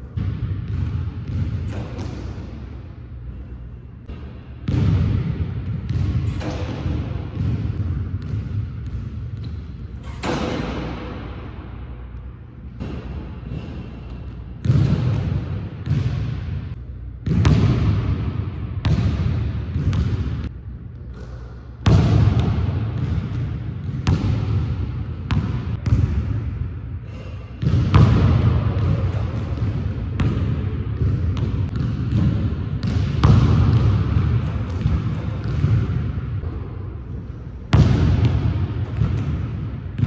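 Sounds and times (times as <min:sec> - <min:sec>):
basketball bouncing on hardwood floor: 0:00.2 - 0:02.2, 0:04.7 - 0:09.6, 0:12.8 - 0:16.4, 0:17.2 - 0:18.2, 0:18.8 - 0:20.4, 0:21.8 - 0:26.2, 0:27.6 - 0:36.6, 0:37.7 - 0:40.0.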